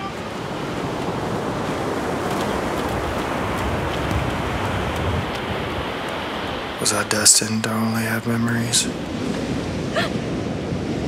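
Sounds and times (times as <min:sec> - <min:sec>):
ocean surf rushing: 0:00.0 - 0:11.0
wind: 0:00.0 - 0:11.0.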